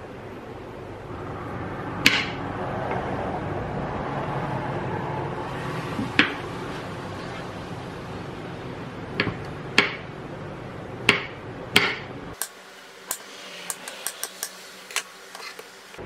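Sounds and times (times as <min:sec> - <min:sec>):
low background hum: 0:00.0 - 0:16.0
knife chopping on wooden board: 0:11.1 - 0:12.5.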